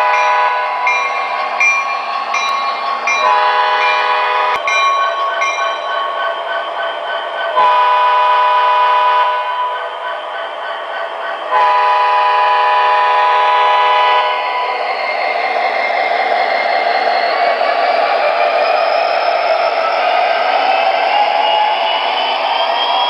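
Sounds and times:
model train air horn blasts: 3.2 - 4.6, 11.6 - 14.4.

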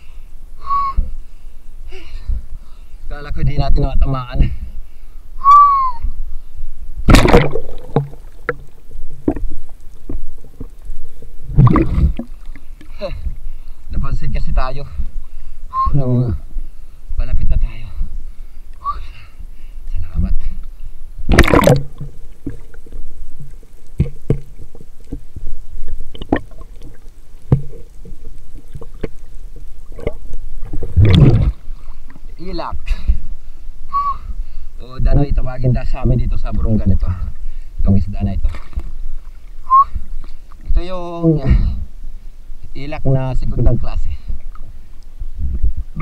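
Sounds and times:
water splashing and sloshing: 7.0 - 15.6, 20.6 - 33.6, 38.2 - 40.9.

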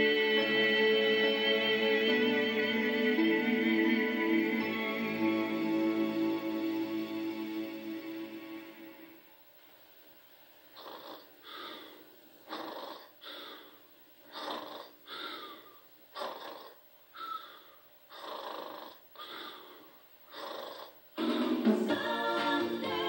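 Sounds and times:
dog snoring: 10.7 - 13.7, 14.3 - 17.5, 18.1 - 21.3.

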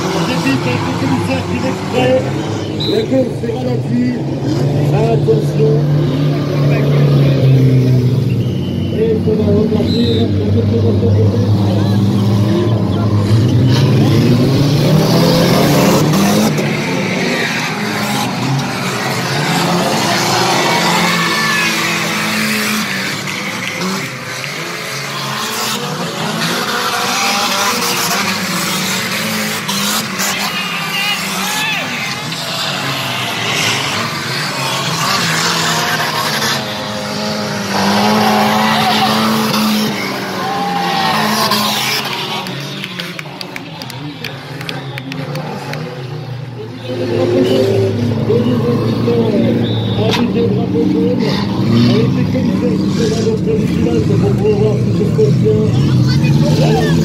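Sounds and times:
stock car engines racing: 0.0 - 57.0.

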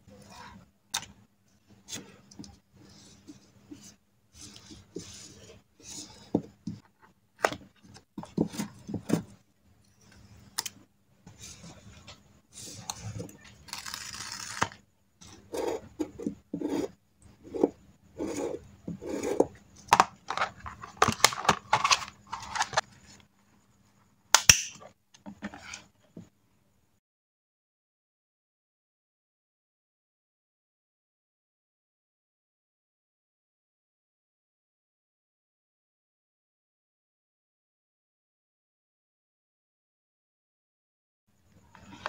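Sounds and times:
paper rustling and scratching: 11.4 - 14.8, 20.3 - 23.2
sharp click: 24.4 - 24.8.

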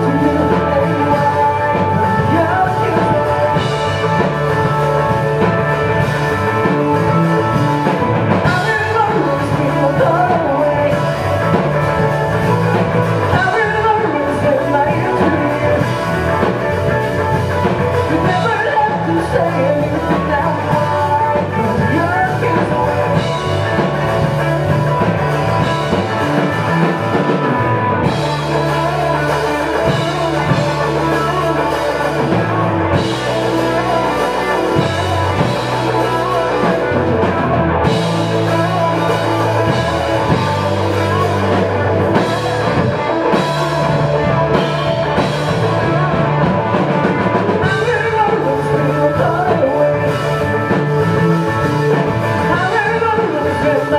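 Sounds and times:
drum kit: 0.0 - 53.9
electric guitar: 0.0 - 53.9.

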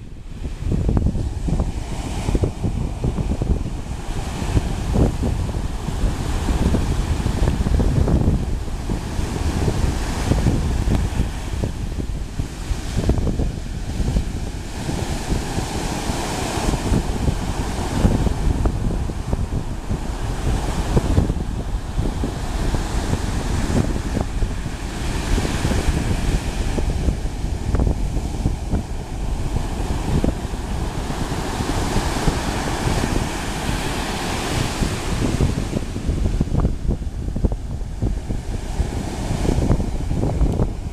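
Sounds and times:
wind buffeting microphone: 0.0 - 40.9
surf breaking on beach: 0.3 - 40.9.

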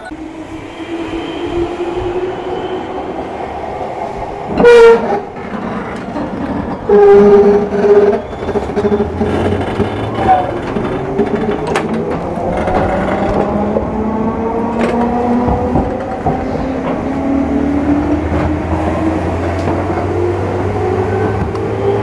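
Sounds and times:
rising whine: 0.0 - 4.7
train hum: 0.0 - 22.0
train horn blasts: 4.5 - 5.2.

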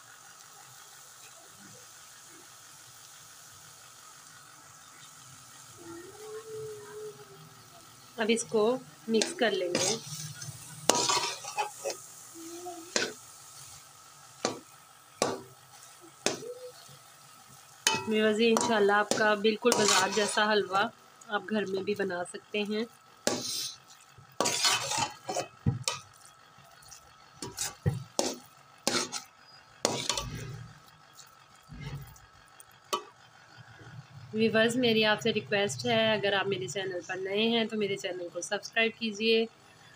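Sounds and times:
faint frying sizzle: 0.0 - 39.9
metal spatula scraping a pot: 9.1 - 12.1, 12.9 - 13.8, 14.4 - 16.9, 17.9 - 20.8, 23.3 - 32.2
metal spoon stirring thick food: 9.1 - 12.1, 12.9 - 16.9, 17.9 - 20.8, 23.2 - 33.2.

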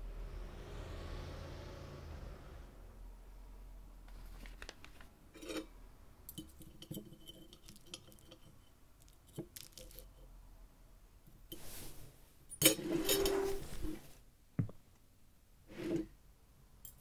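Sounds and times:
small hard objects clinking: 6.4 - 10.3.

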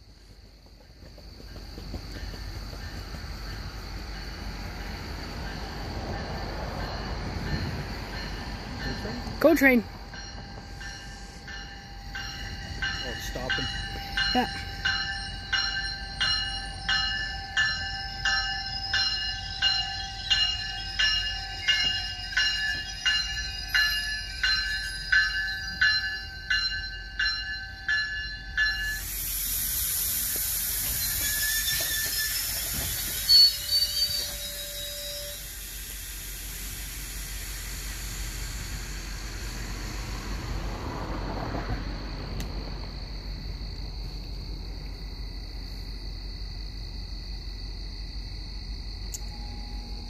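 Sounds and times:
train bell ringing: 2.1 - 39.8, 49.0 - 50.0
air hiss from train: 28.6 - 41.2
short tone: 49.2 - 50.0.

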